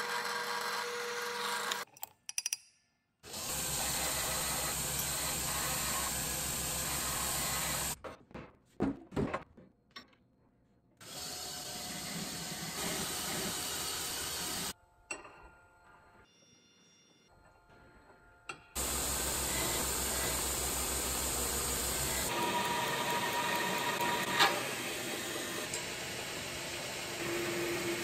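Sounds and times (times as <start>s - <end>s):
belt grinder grinding steel: 0.0s - 1.9s, 3.3s - 8.0s, 18.8s - 28.0s.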